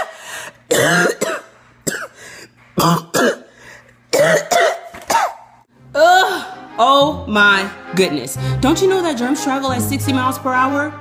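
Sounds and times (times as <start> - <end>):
woman coughing: 0.7 - 2.2, 2.8 - 3.5, 4.1 - 5.6.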